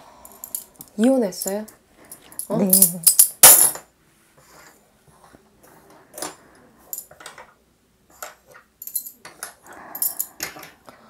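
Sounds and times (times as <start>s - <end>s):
small metal objects clattering: 2.3s - 3.9s.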